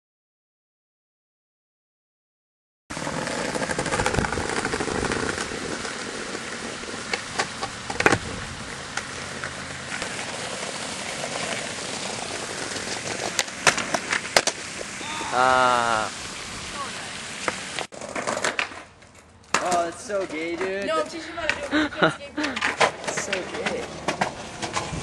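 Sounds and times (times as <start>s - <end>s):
skateboard clacking: 2.9s - 8.3s, 8.9s - 15.0s, 17.4s - 25.0s
skateboard wheels rolling on bricks: 2.9s - 25.0s
person shouting: 15.0s - 17.1s.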